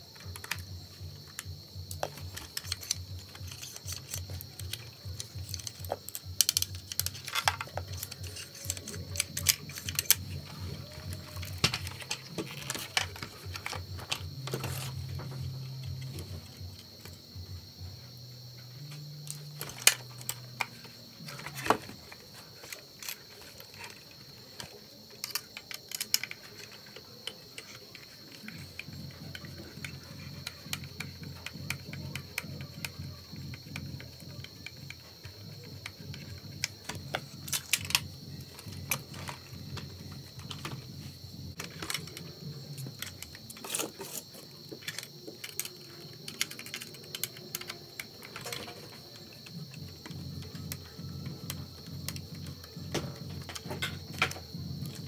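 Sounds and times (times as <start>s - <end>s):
plastic parts clicking: 0.0s - 17.2s, 18.9s - 41.0s, 41.6s - 55.0s.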